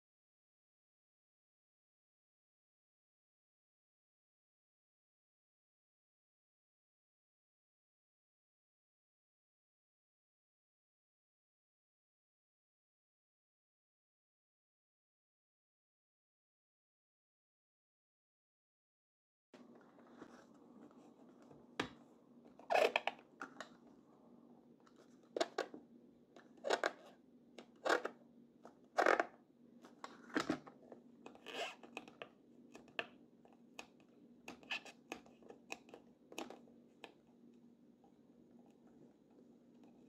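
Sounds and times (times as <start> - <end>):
faint steady hum: 19.6 - 40.0.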